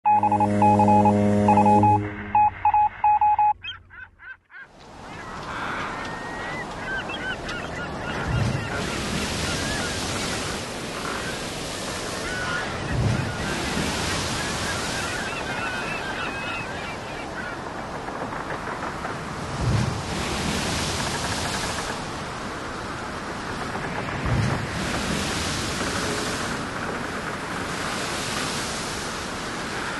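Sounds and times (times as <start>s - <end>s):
wind: 0.0s - 29.9s
low buzzing tone: 0.1s - 2.6s
electronic beeps: 0.1s - 3.8s
birds calling: 2.6s - 18.9s
surf: 4.8s - 29.9s.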